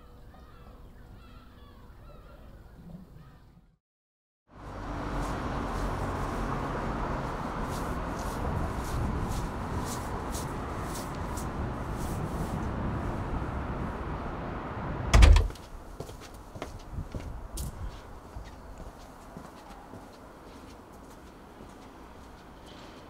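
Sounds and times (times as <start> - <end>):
road traffic hum: 4.5 - 23.0
footsteps on pavement: 4.9 - 12.6, 15.5 - 23.0
loud thump: 15.1 - 15.6.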